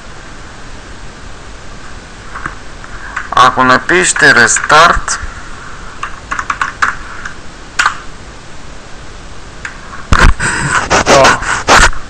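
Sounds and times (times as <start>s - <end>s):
computer keyboard keystrokes: 6.0s - 7.0s, 7.8s - 8.0s.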